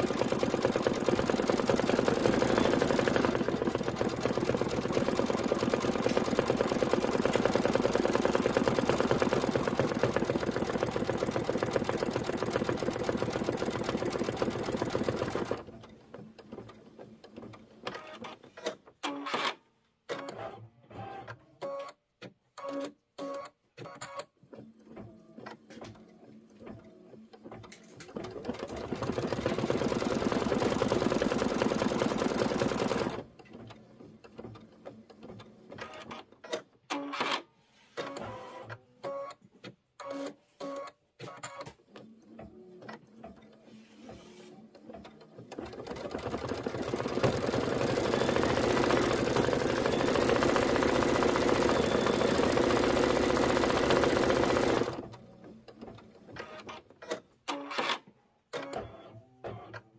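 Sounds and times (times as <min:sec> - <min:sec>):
embroidery machine stitching: 0:00.0 - 0:19.5, 0:28.0 - 0:33.3, 0:44.1 - 0:57.9.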